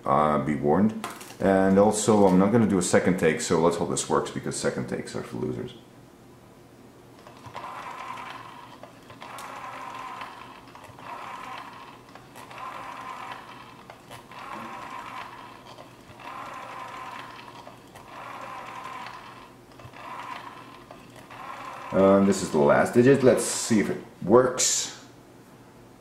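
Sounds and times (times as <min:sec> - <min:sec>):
rotary dial whirring clicks: 0:07.2 - 0:23.5.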